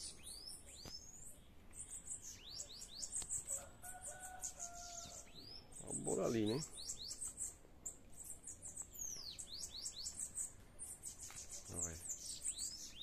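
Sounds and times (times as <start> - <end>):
birds singing high thin notes: 0.0 - 13.0.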